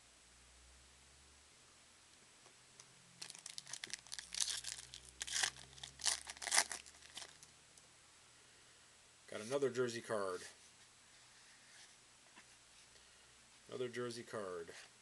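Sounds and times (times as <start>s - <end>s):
plastic wrapper tearing and crinkling: 3.2s - 7.5s.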